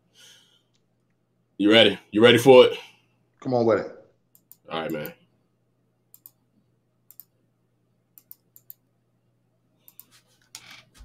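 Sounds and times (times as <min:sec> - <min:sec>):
low steady hum: 0:00.0 - 0:11.0
computer mouse and keyboard clicks: 0:06.1 - 0:06.4, 0:09.8 - 0:11.0.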